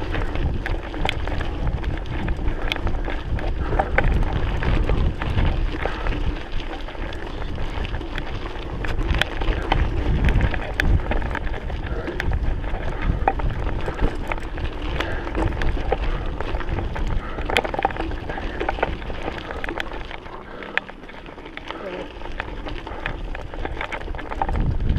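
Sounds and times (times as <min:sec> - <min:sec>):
bike clicks and rattles: 0:00.0 - 0:24.9
tyres crunching on gravel: 0:00.0 - 0:24.9
wind buffeting microphone: 0:00.0 - 0:24.9.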